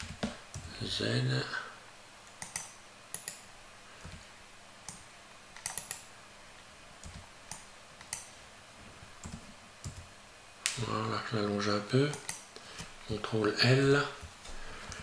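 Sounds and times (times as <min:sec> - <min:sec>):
keyboard and mouse clicking: 0:02.3 - 0:03.4, 0:04.9 - 0:06.1, 0:07.0 - 0:08.3, 0:09.2 - 0:10.1, 0:12.1 - 0:12.9.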